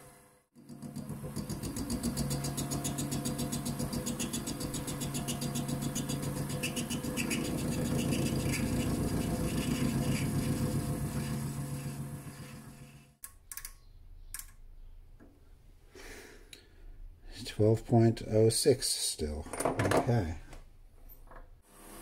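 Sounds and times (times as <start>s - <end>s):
lathe motor hum: 0.6s - 13.2s
tool scraping brass: 1.5s - 13.0s.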